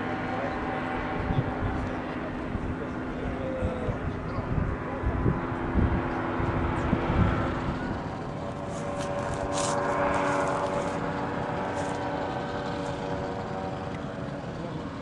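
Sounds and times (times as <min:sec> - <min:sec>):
small aircraft engine drone: 0:00.0 - 0:15.0.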